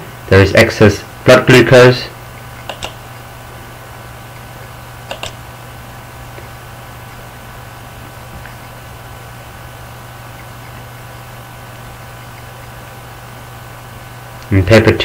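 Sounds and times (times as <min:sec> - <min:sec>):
low hum and hiss: 0:00.0 - 0:15.0
computer mouse clicks: 0:02.4 - 0:03.2, 0:05.0 - 0:05.4.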